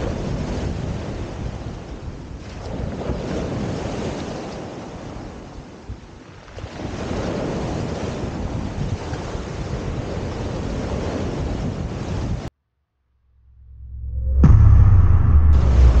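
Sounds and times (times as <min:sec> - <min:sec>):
surf on pebble beach: 0:00.0 - 0:12.4
wind buffeting microphone: 0:00.0 - 0:12.5, 0:14.1 - 0:16.0.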